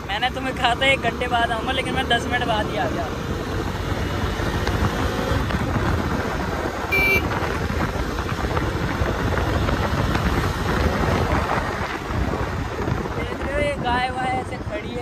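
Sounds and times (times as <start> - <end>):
wind rushing: 3.1 - 15.0
high-pitched beep: 6.9 - 7.2.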